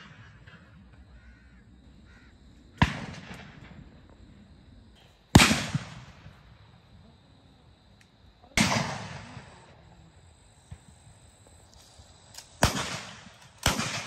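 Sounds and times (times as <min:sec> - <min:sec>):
shotgun shots: 0:02.8 - 0:03.8, 0:05.3 - 0:06.4, 0:08.6 - 0:09.7, 0:12.4 - 0:14.0.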